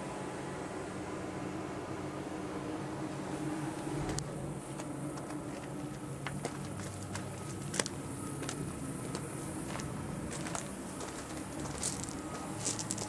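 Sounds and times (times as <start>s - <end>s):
steady low hum: 0.0s - 13.0s
footsteps crunching on gravel: 4.7s - 13.0s.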